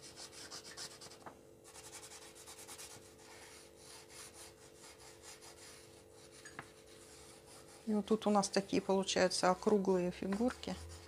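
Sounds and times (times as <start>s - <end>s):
marker scratching on paper: 0.0s - 8.8s.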